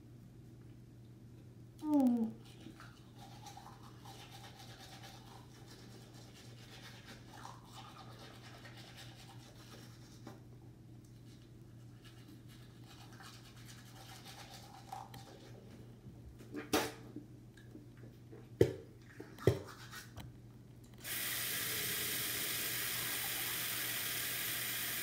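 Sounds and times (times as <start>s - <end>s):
low steady hum: 0.0s - 19.4s
toothbrush scrubbing teeth: 2.4s - 10.3s, 11.1s - 15.7s, 19.4s - 20.2s.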